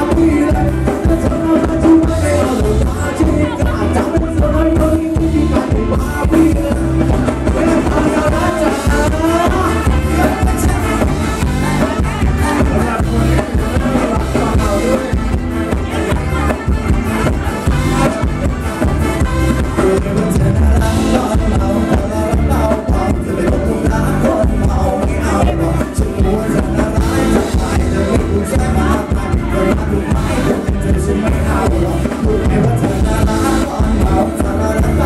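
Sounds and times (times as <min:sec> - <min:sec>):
dance band music over loudspeakers: 0:00.0 - 0:35.0
drum kit beat: 0:00.0 - 0:35.0
electric guitar: 0:00.0 - 0:35.0
man singing: 0:00.0 - 0:35.0.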